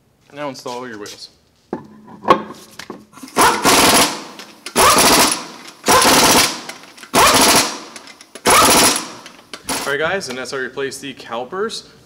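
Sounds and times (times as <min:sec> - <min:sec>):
impact wrench hammering: 0:01.8 - 0:10.2.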